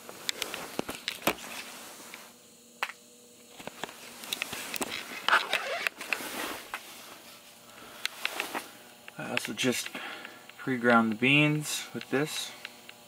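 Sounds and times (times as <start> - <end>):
faint hiss: 3.9 - 13.0.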